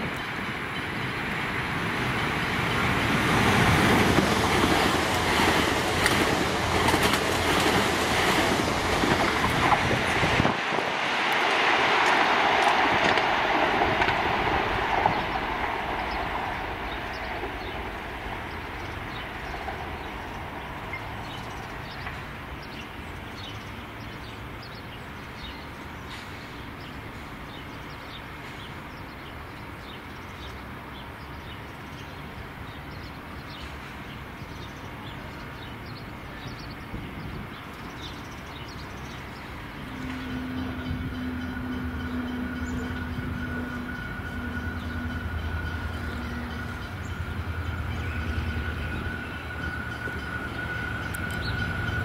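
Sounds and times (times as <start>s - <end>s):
electric train passing: 0.0s - 52.0s.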